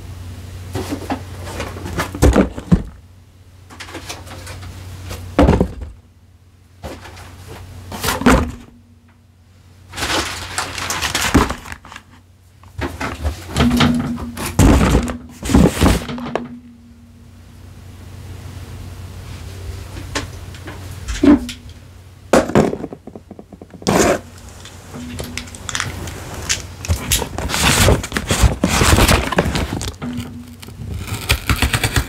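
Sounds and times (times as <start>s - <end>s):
steady low hum: 0.0s - 32.0s
packaging rustling and scraping: 9.9s - 16.4s, 23.7s - 32.0s.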